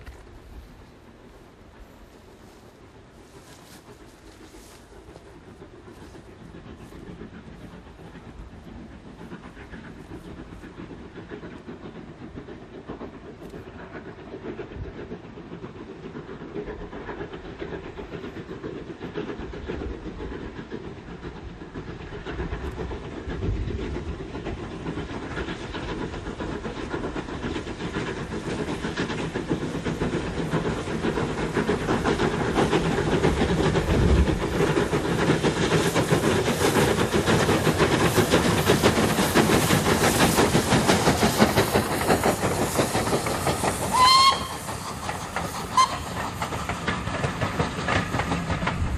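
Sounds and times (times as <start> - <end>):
steam hissing: 0.0 - 48.9
steam locomotive exhaust beats: 0.0 - 48.9.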